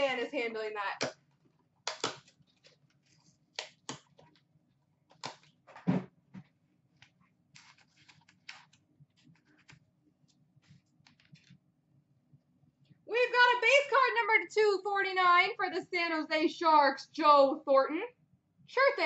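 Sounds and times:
thump: 5.8 - 6.4.

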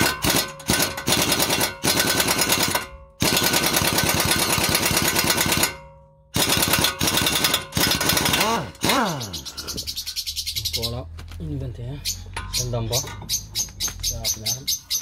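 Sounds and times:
pneumatic impact wrench hammering: 0.0 - 9.3.

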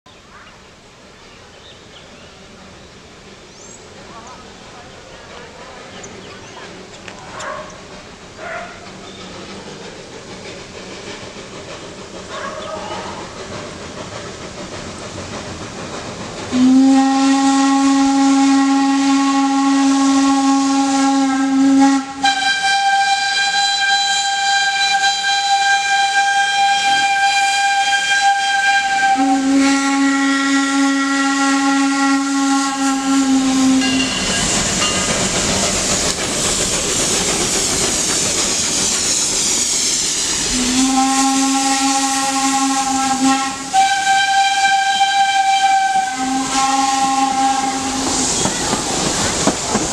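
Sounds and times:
locomotive steam noise: 0.2 - 49.9
steam hiss: 0.8 - 49.9
steam locomotive whistle: 16.5 - 35.3, 38.6 - 49.1.

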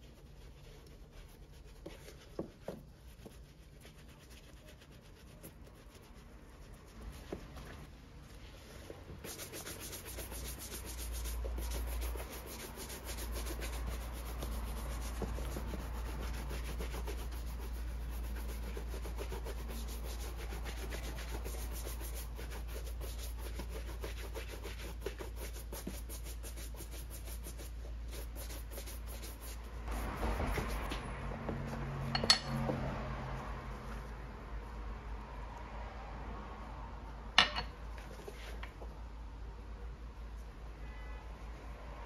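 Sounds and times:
bristle brush scrubbing leather: 0.0 - 30.9.

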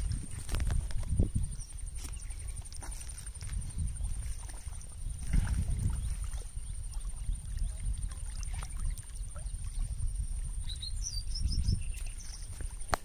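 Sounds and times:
wind rumbling on microphone: 0.0 - 13.0
bird chirping: 10.6 - 12.6.

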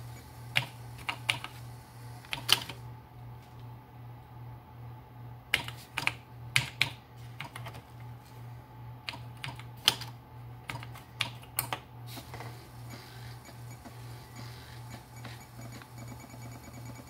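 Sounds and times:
faint disk drive hiss: 0.0 - 3.6, 12.0 - 17.0
low steady hum: 0.0 - 17.0.

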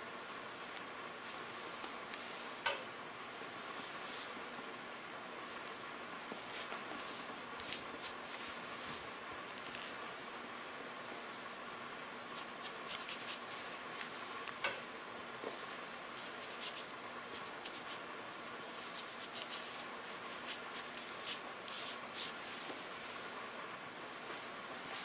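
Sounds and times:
faint steady hiss: 0.0 - 25.0
brush scratching on paper: 6.3 - 9.1, 11.3 - 13.8, 15.6 - 22.6.

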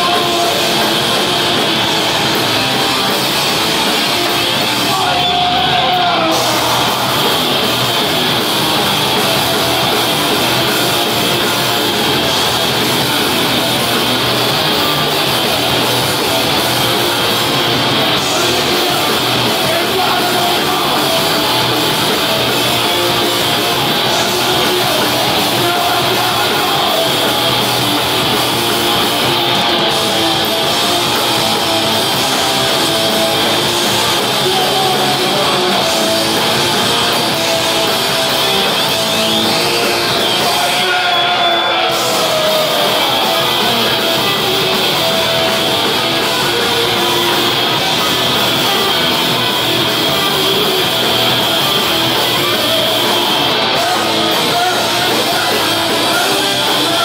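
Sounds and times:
electric guitar: 0.0 - 57.0
live band playing heavy rock: 0.0 - 57.0.

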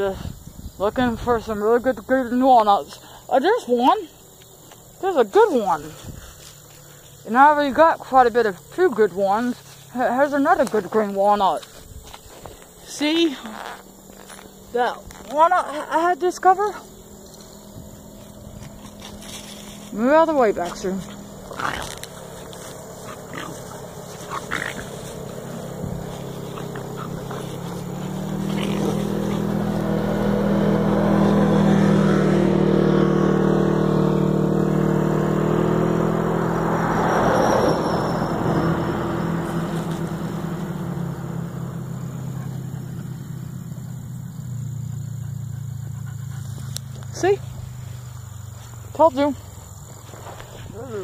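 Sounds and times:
vehicle engine passing by: 0.8 - 51.0.

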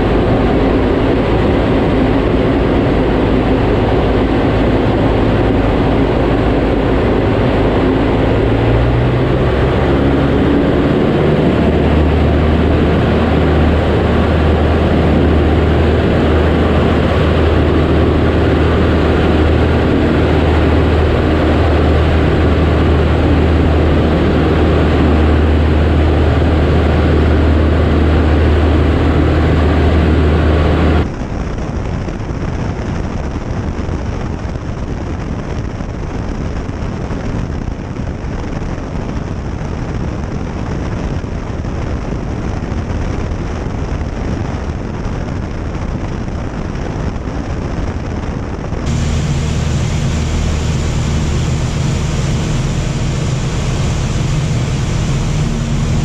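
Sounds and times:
aircraft engine and propeller droning: 0.0 - 31.6, 48.8 - 56.0.

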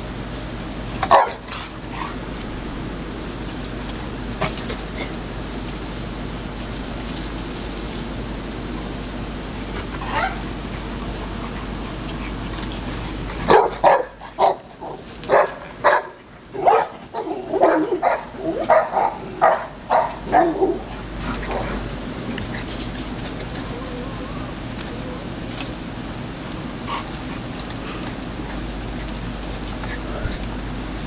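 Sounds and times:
dogs barking and yipping: 0.9 - 2.2, 9.6 - 25.5.

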